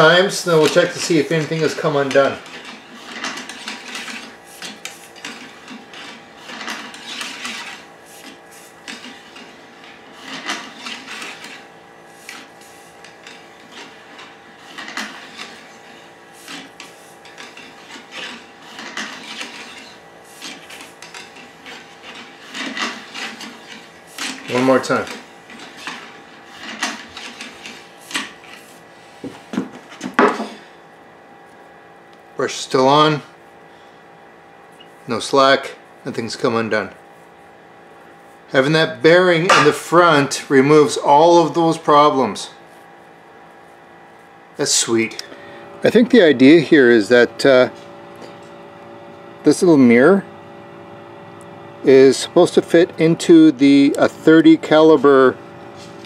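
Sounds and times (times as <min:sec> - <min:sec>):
brush scraping rifle bore: 0:00.0 - 0:29.2.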